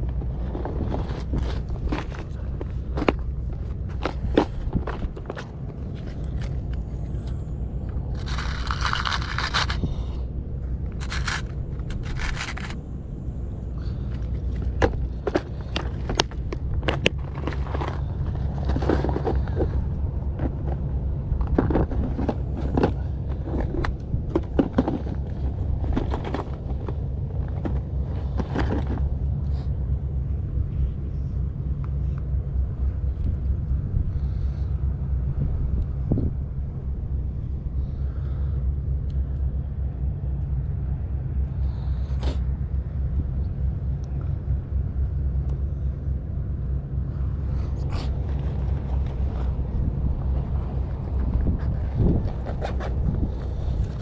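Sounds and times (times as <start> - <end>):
knocks clicks and scrapes: 0.0 - 10.2, 10.8 - 12.8, 14.0 - 29.6, 47.7 - 54.0
wind rumble on microphone: 0.0 - 54.0.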